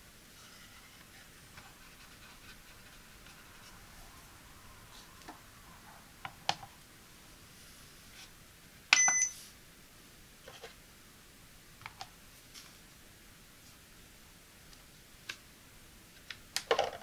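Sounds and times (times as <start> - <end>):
scale beep: 8.9 - 9.4.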